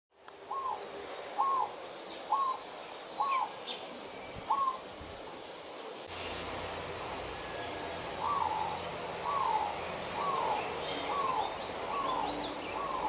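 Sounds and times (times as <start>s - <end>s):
dove cooing: 1.4s - 2.6s, 3.2s - 3.6s, 4.5s - 4.9s, 8.2s - 13.0s.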